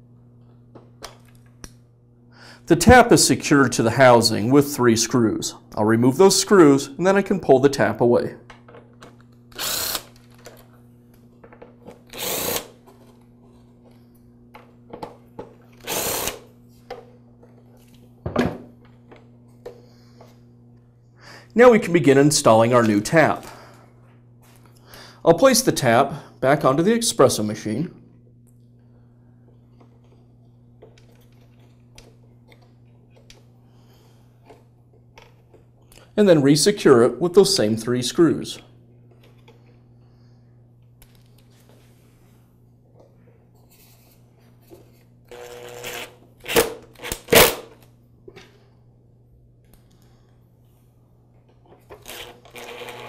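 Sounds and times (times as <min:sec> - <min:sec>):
electric screwdriver running: 0:09.5 - 0:10.3, 0:12.1 - 0:12.8, 0:15.8 - 0:16.5, 0:45.3 - 0:47.7, 0:52.0 - 0:53.0.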